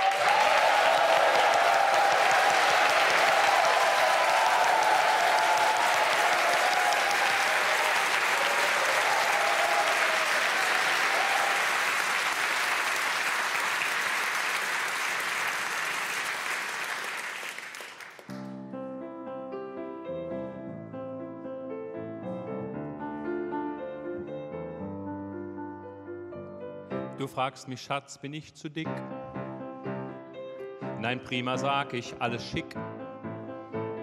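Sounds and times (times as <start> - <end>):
audience applauding: 0.0 - 18.5
grand piano playing: 18.2 - 34.0.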